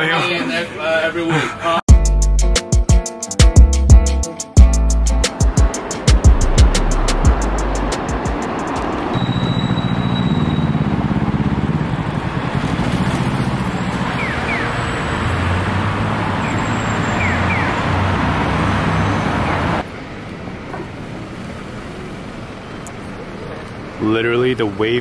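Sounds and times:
city traffic rumble: 3.8s - 25.0s
quiet street ambience: 7.6s - 25.0s.

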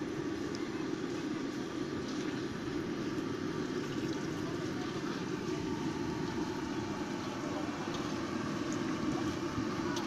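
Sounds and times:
gas burner roaring: 0.0s - 10.0s.

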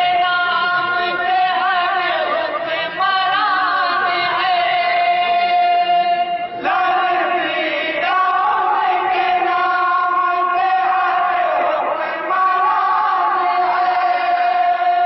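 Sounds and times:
men singing in unison: 0.0s - 15.0s.

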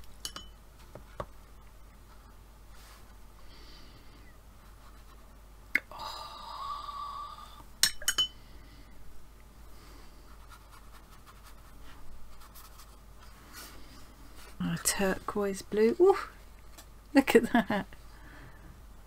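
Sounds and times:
brush strokes on paper: 2.0s - 3.2s, 9.8s - 14.6s.

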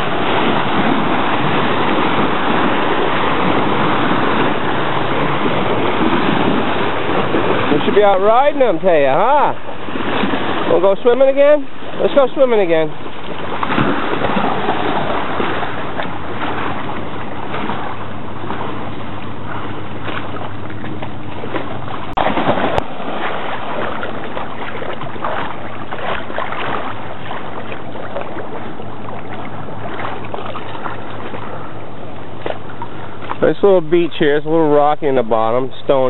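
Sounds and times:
waves washing against shore: 0.0s - 36.0s
dog splashing through water: 11.7s - 31.7s.

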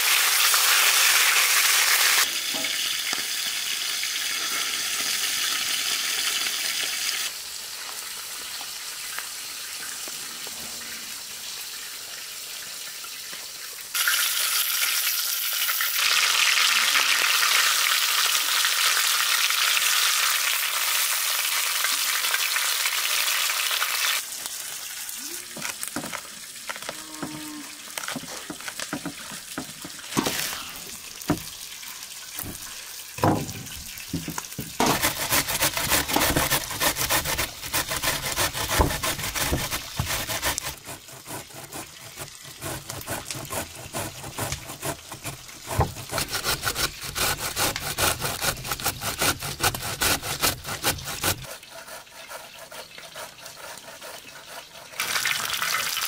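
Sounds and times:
cabbage grating on metal grater: 34.8s - 55.8s.

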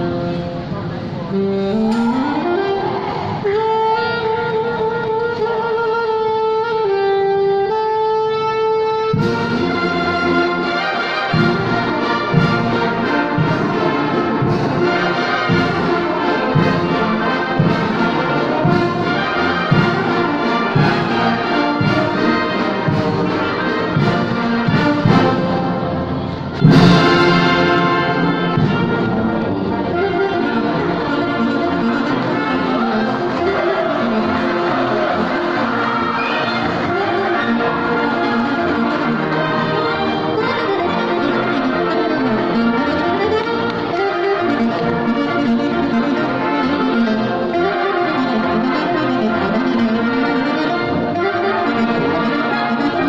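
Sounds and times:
alto saxophone melody: 0.0s - 53.0s
brass band playing: 0.0s - 53.0s.

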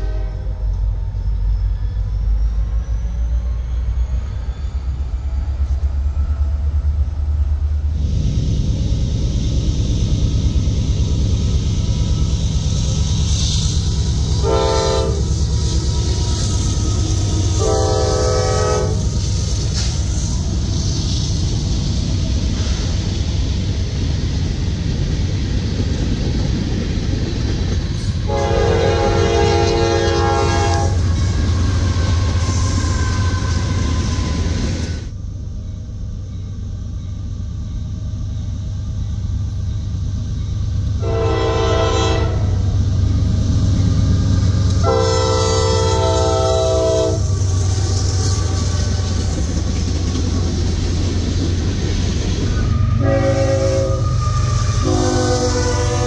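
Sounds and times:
locomotive air horn blasts: 0.0s - 0.7s, 14.2s - 19.3s, 28.3s - 34.3s, 41.0s - 42.7s, 44.8s - 48.8s, 52.5s - 56.0s
diesel locomotive engine rumble: 0.0s - 56.0s
train wheel noise: 0.0s - 56.0s.

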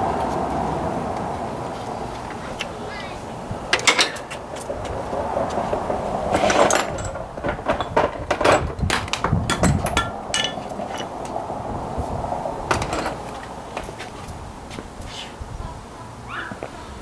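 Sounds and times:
short metallic rings: 3.7s - 4.5s, 9.5s - 11.1s
hand tools clanking on metal: 3.7s - 5.0s, 6.3s - 11.4s, 12.7s - 14.2s.

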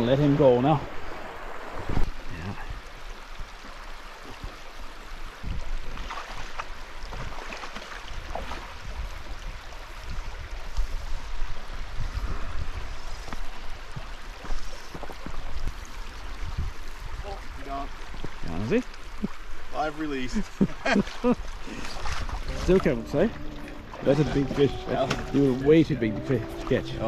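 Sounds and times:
river water rippling over rocks: 0.0s - 27.0s.

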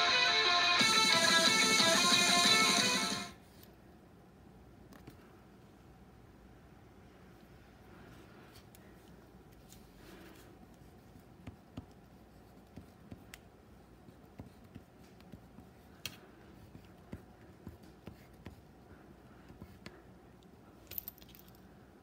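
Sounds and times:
scratching on paper: 9.6s - 20.1s.

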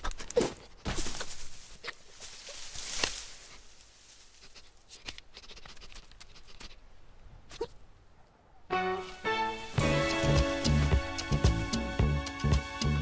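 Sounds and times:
dry leaves rustling and crackling: 0.0s - 4.8s, 9.0s - 12.9s.

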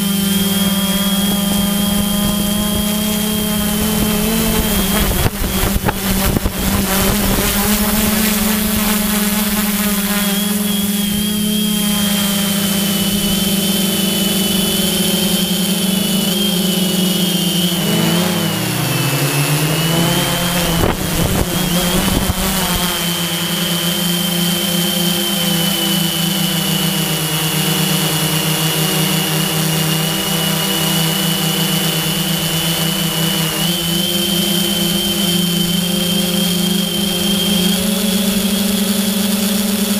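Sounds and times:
wind on microphone: 0.0s - 15.7s, 19.3s - 24.5s
drone motors buzzing and whining: 0.0s - 39.9s.

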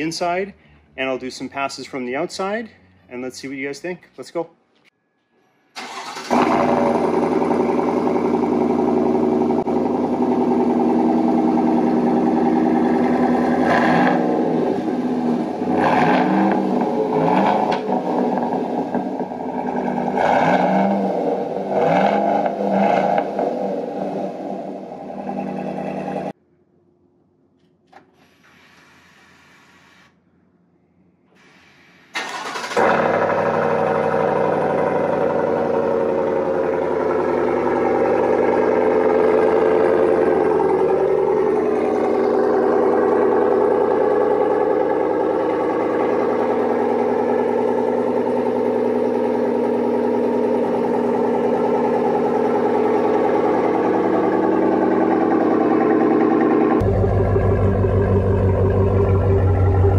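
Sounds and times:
loud engine idle: 5.9s - 13.6s, 32.8s - 59.9s.

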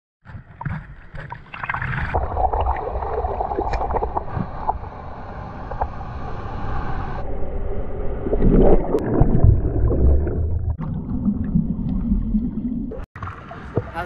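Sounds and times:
water sloshing and splashing: 0.3s - 6.0s, 8.2s - 14.0s.

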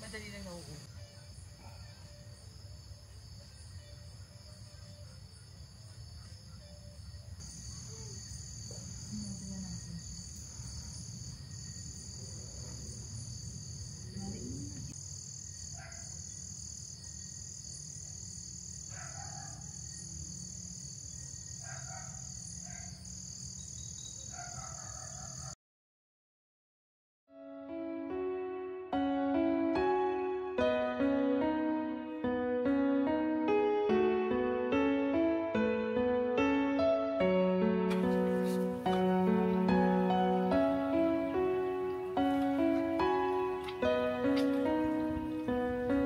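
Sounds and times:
frogs croaking: 0.0s - 25.5s, 38.7s - 46.0s
crickets trilling: 0.0s - 25.6s, 38.0s - 46.0s.

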